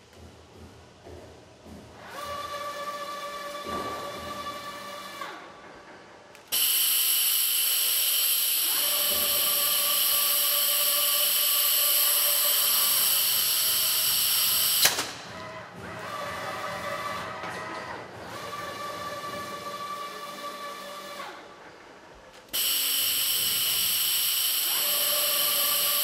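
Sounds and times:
compressed-air hiss: 6.5s - 15.0s, 22.6s - 26.0s.

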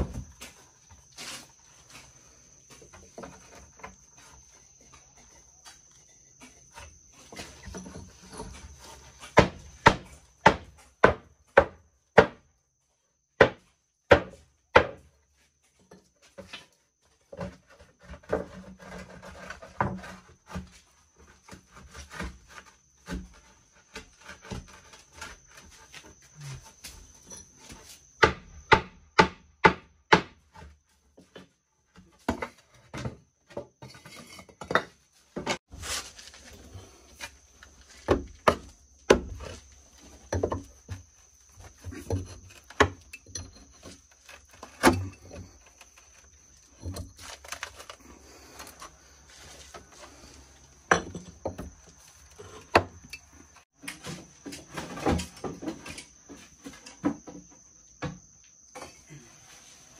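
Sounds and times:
sharp knocks and thuds: 7.2s - 12.5s, 13.4s - 15.1s, 28.2s - 33.9s, 37.9s - 45.6s.

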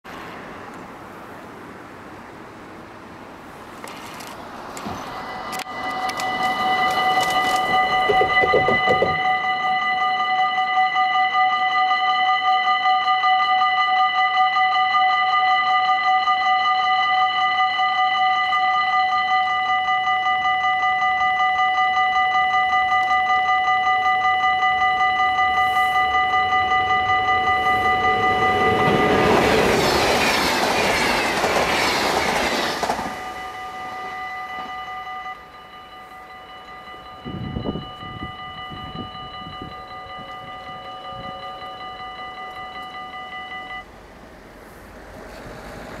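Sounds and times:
train passing at speed: 0.1s - 46.0s
level crossing bells ringing: 5.0s - 31.1s, 33.0s - 43.9s
low thumps: 7.7s - 9.4s.

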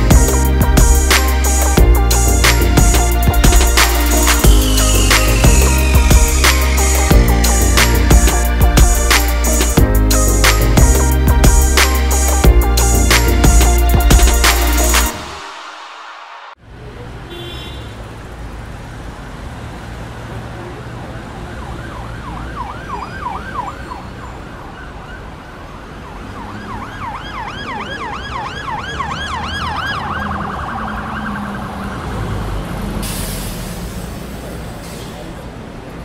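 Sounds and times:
street traffic rumble: 0.0s - 36.0s
siren yelping: 21.6s - 25.3s, 26.0s - 32.2s.

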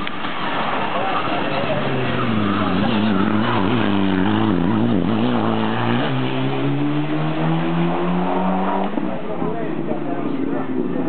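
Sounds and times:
rally car engine revving: 0.3s - 9.2s.

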